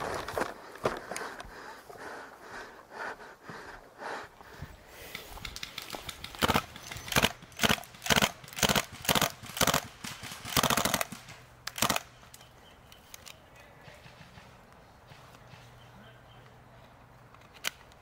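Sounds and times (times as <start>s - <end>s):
airsoft gun firing bursts: 5.1s - 12.1s.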